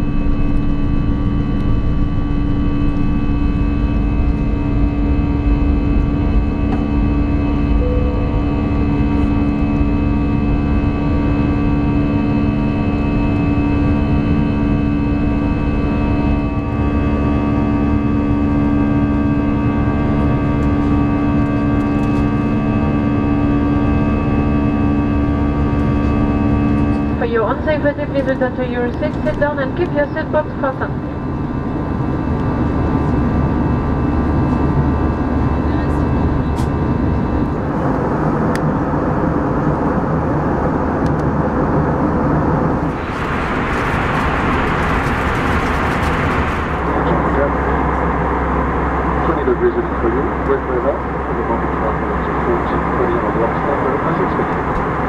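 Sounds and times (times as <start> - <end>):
jet engines droning in cabin: 0.0 - 55.0
rushing air: 42.7 - 47.3.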